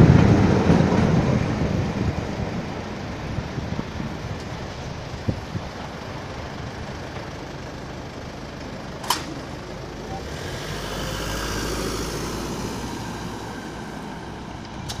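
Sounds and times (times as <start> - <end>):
sharp click: 9.0 - 9.4
car driving past: 10.0 - 15.0.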